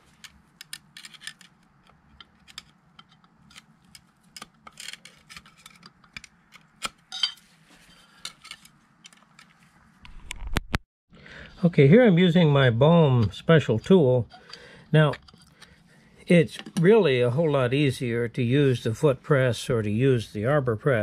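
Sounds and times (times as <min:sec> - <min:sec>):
small metallic clicks and scrapes: 0:00.0 - 0:09.6, 0:13.8 - 0:15.8.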